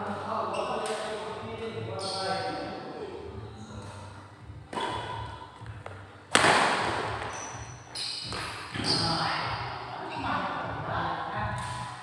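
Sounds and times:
racket striking shuttlecock: 4.7s - 5.4s, 6.3s - 7.5s.

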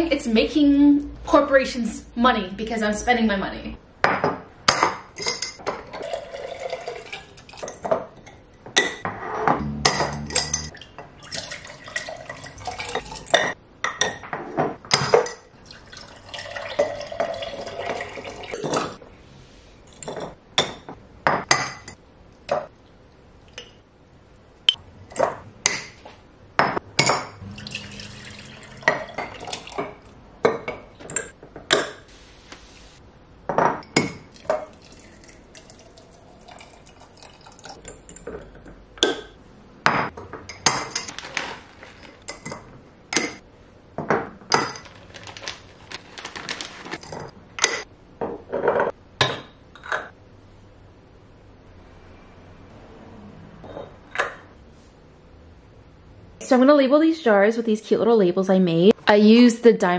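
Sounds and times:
liquid pouring into jars: 5.8s - 7.8s, 10.3s - 13.4s, 15.6s - 18.6s, 27.4s - 30.1s, 34.3s - 37.9s
glass jars clinking on countertop: 9.9s - 10.7s.

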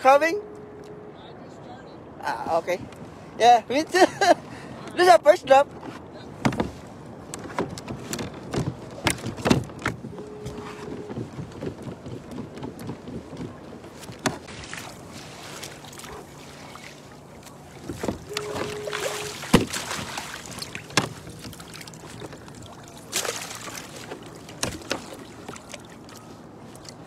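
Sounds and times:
light wind: 0.0s - 27.0s
water: 0.0s - 27.0s
knocks against kayak hull: 5.8s - 6.8s, 19.5s - 21.6s, 23.1s - 25.7s.

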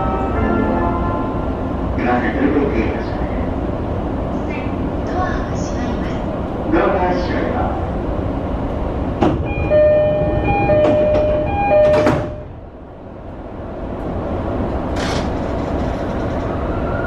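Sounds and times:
train running noise: 0.0s - 17.0s
two-tone electronic warning chime: 9.5s - 12.5s.

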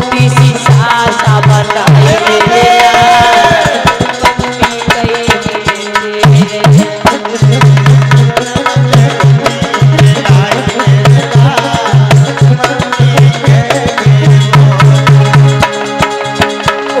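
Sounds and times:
fast hand drum beat: 0.0s - 17.0s.

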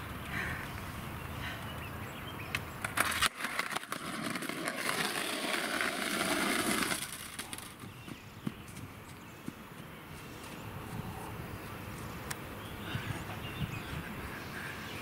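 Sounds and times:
skateboard wheels rolling on pavement: 0.0s - 11.0s.

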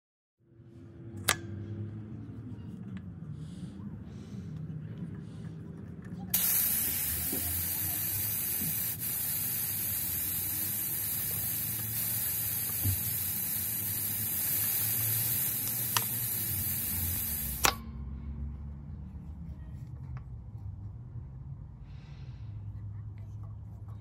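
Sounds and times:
air hissing out of tyre: 6.3s - 17.8s
deflator click: 14.2s - 17.8s.

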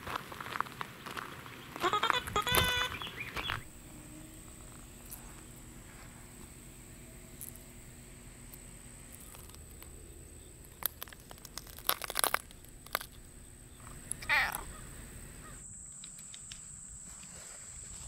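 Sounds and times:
cat call: 1.8s - 3.1s, 14.1s - 15.6s.

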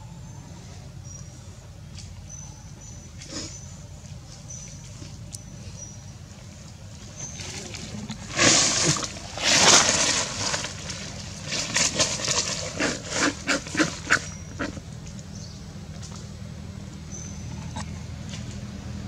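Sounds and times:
dry leaves rustling and crackling: 6.4s - 15.4s.

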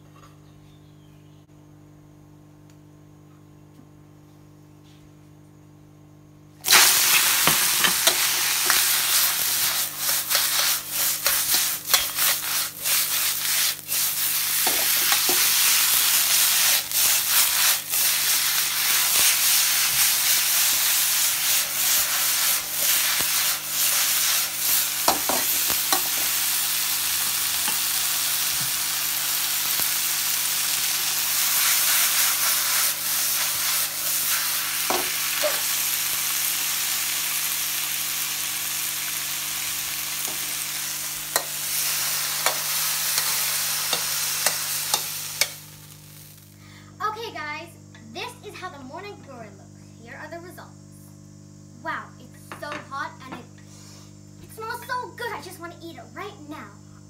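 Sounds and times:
faint hum: 0.0s - 57.0s
food sizzling in hot oil: 6.6s - 46.6s
ladle scraping wok: 6.7s - 26.4s.

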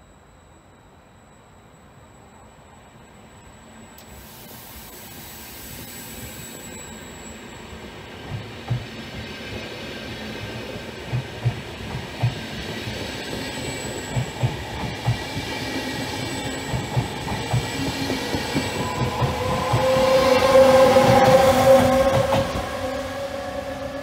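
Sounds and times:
electric locomotive whine: 0.0s - 24.0s
train wheels thumping over rail joints: 11.0s - 12.6s.

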